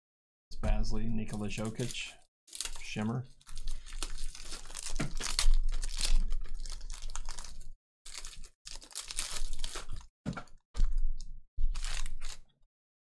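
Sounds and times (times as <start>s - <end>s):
foil wrapper tearing and crinkling: 1.3s - 10.1s, 11.6s - 12.5s.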